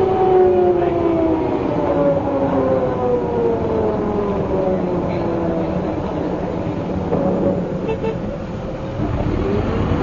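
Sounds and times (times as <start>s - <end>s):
bus differential whine: 0.0s - 10.0s
diesel engine running: 4.5s - 10.0s.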